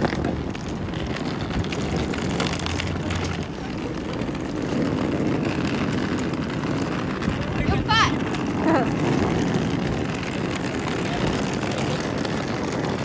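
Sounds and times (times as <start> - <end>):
suitcase wheels rumbling on pavement: 0.0 - 13.0.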